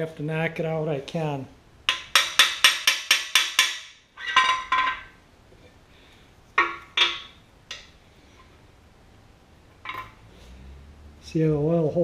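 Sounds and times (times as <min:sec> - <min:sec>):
hammer tapping on metal: 0:01.9 - 0:04.9.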